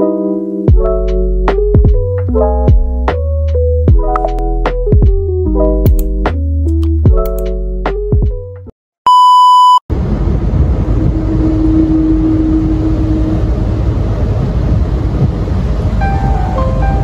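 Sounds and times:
loud electronic beep: 0:09.1 - 0:09.8
car road noise on wet road: 0:09.9 - 0:17.0.

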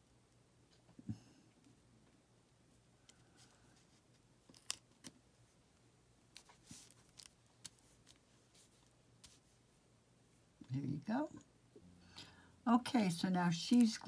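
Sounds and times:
paper rustling: 0:06.3 - 0:09.5.

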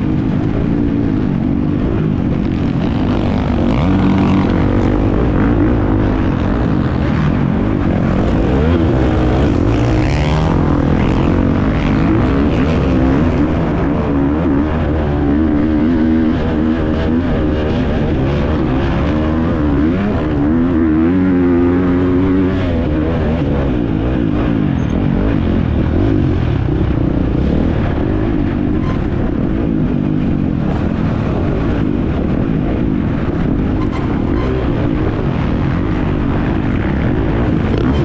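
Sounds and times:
motocross bike engine revving: 0:00.0 - 0:29.2.

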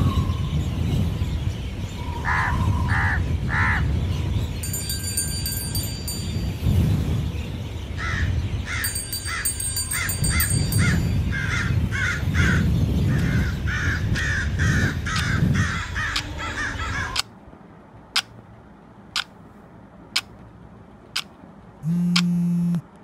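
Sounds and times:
low background rumble: 0:00.0 - 0:23.0
crows cawing: 0:08.0 - 0:17.2.

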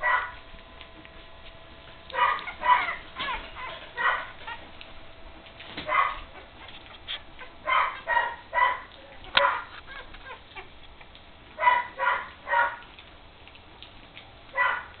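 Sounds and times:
puppies squeaking and whimpering: 0:02.1 - 0:04.8, 0:05.4 - 0:13.8.

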